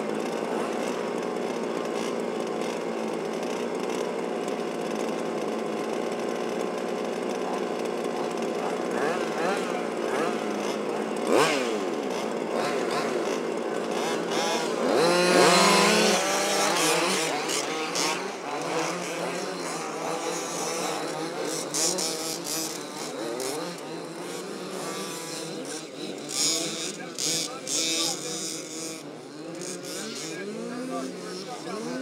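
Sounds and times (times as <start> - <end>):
small two-stroke engines buzzing and revving: 0.0 - 32.0.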